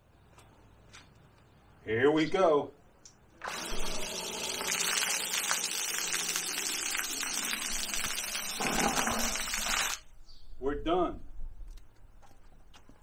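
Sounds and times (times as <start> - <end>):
pump motor hum: 3.4 - 10.0
water spraying hiss: 4.3 - 10.0.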